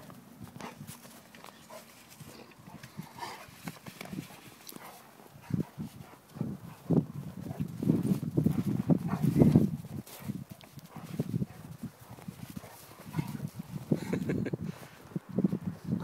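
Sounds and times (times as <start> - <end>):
paws scuffling on snow: 0.0 - 15.6
dogs growling and grunting: 12.6 - 14.3.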